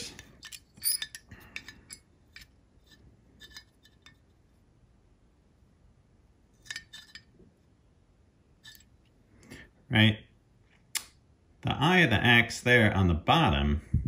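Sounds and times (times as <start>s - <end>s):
metal calipers clicking on steel: 0.0s - 2.5s.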